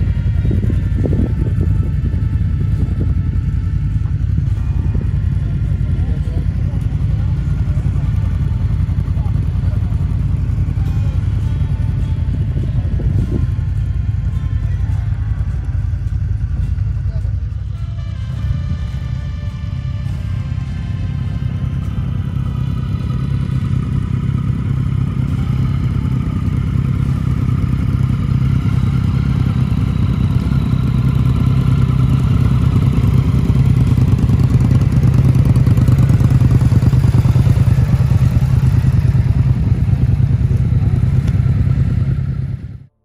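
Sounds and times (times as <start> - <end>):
motorcycle engine idling: 0.0 - 43.0.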